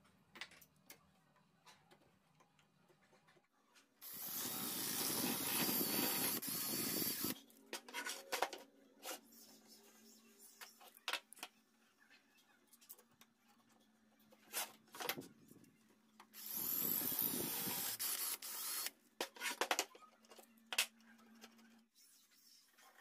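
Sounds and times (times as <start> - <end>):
cordless drill boring through plywood: 4.0 - 7.4, 16.4 - 18.9.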